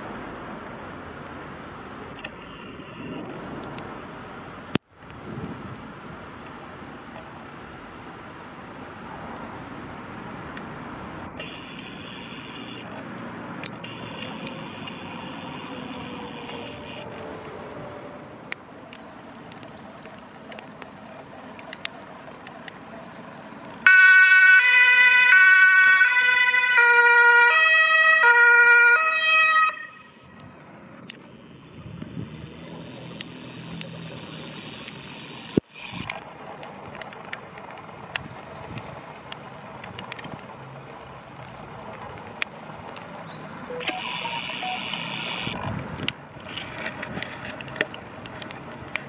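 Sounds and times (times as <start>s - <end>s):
two-tone siren: 11.4s - 12.9s, 13.8s - 18.3s, 23.8s - 30.2s, 43.7s - 45.6s.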